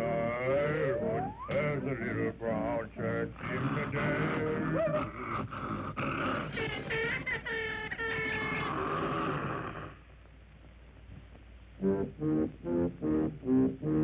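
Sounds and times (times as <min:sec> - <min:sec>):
cartoon character growling: 0:00.0 - 0:02.3, 0:03.4 - 0:10.0
wavering vocal: 0:00.0 - 0:10.0.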